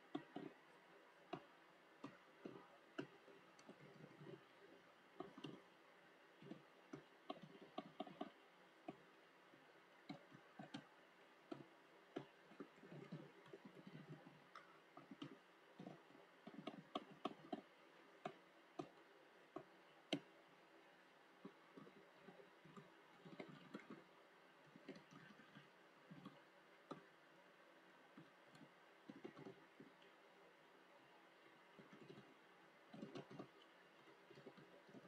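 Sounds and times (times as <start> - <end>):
faint keyboard typing: 0.0 - 35.0.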